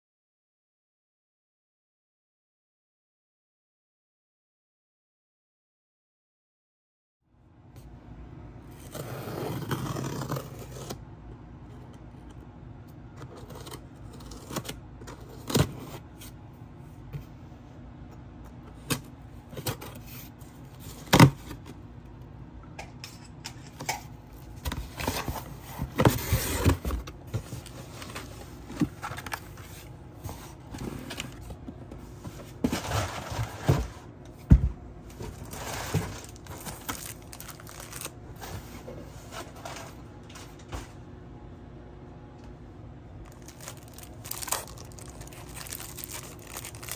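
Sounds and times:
cardboard packaging rustling: 0:24.4 - 0:34.1, 0:35.1 - 0:40.4, 0:43.3 - 0:46.9
packing tape slitting: 0:43.3 - 0:46.9.

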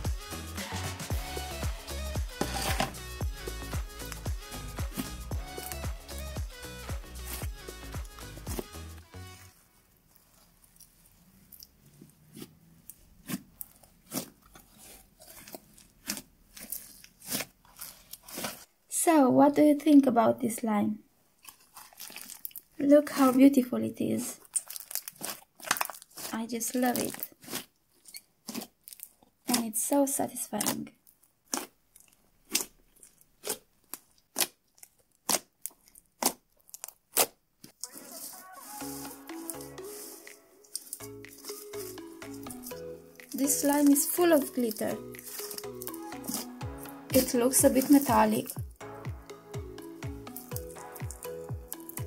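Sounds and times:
slime popping and crackling: 0:10.2 - 0:18.7, 0:21.4 - 0:23.4, 0:24.4 - 0:52.0.

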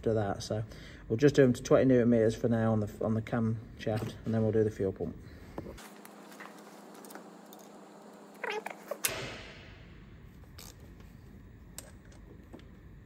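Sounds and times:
sharp click: 0:09.0 - 0:09.7.

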